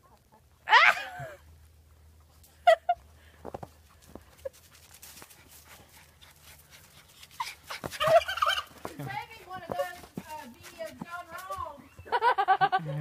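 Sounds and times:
turkey calling: 8.0s - 8.8s.

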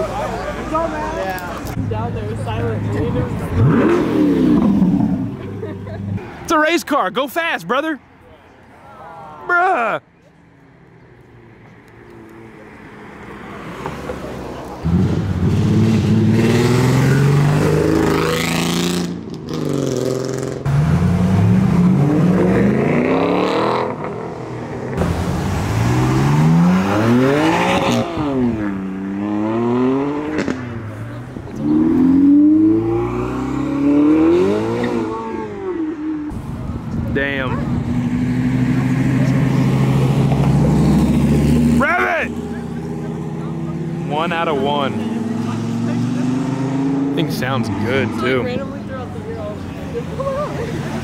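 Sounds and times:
car engines revving: 0.0s - 51.0s.

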